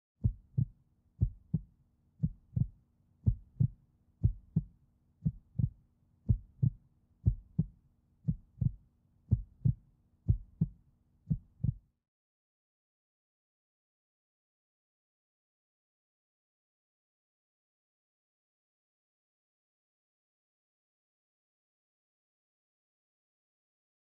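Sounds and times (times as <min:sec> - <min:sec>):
heartbeat thumps: 0:00.2 - 0:05.7, 0:06.3 - 0:07.7, 0:08.3 - 0:11.8.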